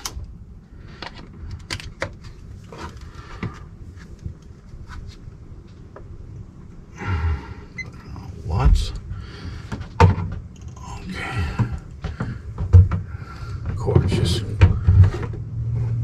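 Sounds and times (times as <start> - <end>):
rustling knock: 11.4 - 15.4
light clicks and knocks: 11.4 - 15.5.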